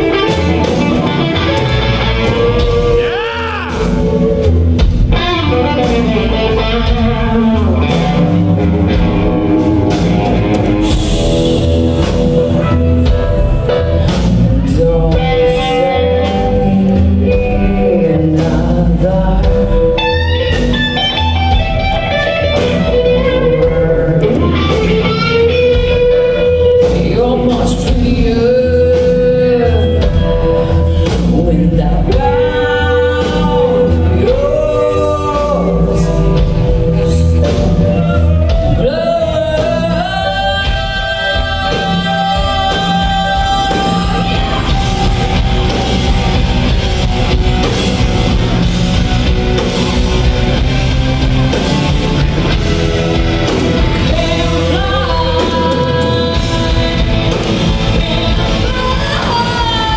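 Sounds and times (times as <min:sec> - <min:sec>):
live rock band playing: 0:00.0 - 0:59.9
woman singing lead: 0:00.0 - 0:59.9.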